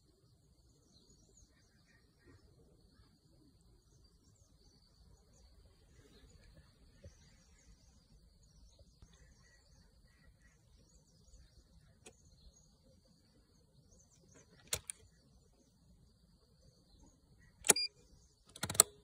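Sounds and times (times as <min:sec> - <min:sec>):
faint bird chirps: 0:00.0 - 0:18.6
sharp clicks of splicer clamps: 0:14.4 - 0:15.1, 0:18.5 - 0:19.0.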